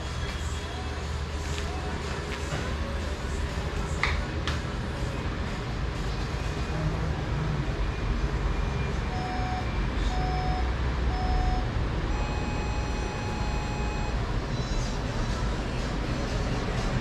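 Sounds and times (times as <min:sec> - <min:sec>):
interval timer beeps: 0:09.1 - 0:14.8.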